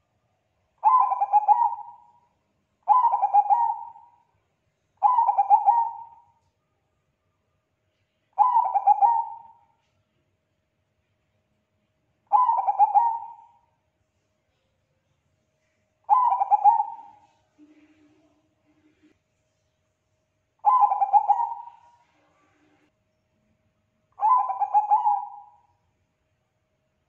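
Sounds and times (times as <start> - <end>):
dove cooing: 0.8 - 2.2, 2.9 - 4.2, 5.0 - 6.3, 8.4 - 9.6, 12.3 - 13.6, 16.1 - 18.0, 20.6 - 22.1, 24.2 - 25.6.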